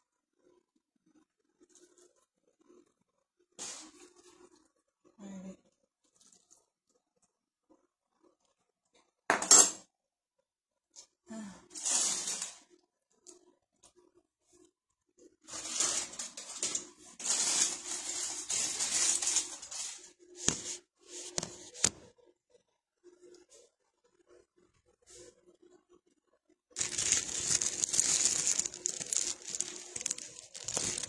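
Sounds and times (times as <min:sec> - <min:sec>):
rustling and scraping: 0:15.4 - 0:22.2, 0:26.8 - 0:31.0
household objects clattering: 0:26.8 - 0:31.0.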